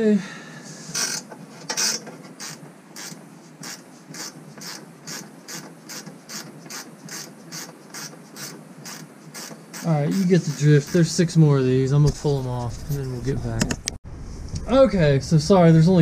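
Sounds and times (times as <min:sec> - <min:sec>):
ratchet wrench clicking: 0:01.0 - 0:11.0.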